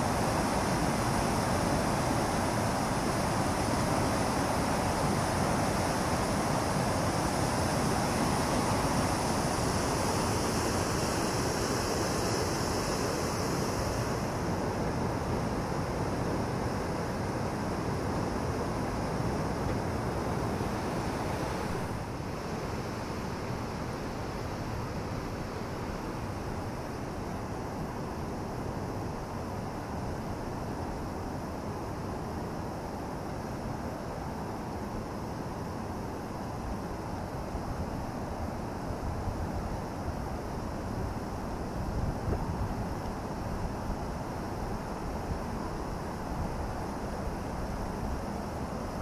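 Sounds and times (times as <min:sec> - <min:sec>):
white water rushing below weir: 0:00.0 - 0:49.0.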